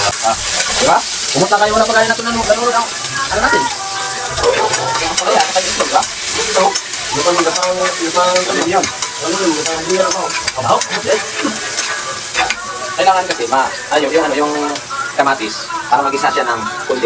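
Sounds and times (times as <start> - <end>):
vegetables sizzling in oil: 0.0 - 17.0
spatula scraping and squeaking on pan: 0.1 - 13.2.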